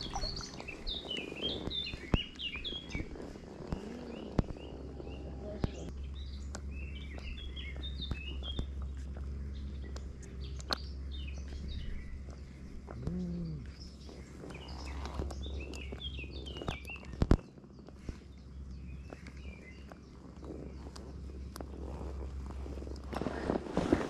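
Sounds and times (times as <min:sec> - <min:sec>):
sharp clicks: 0:00.0 - 0:18.3
low steady rumble: 0:00.0 - 0:24.0
small birds chirping: 0:00.0 - 0:24.0.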